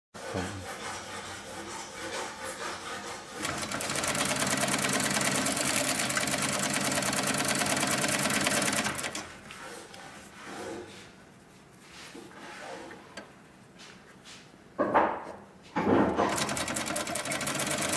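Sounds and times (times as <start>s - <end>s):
industrial sewing machine stitching: 3.4s - 9.5s, 16.0s - 17.9s.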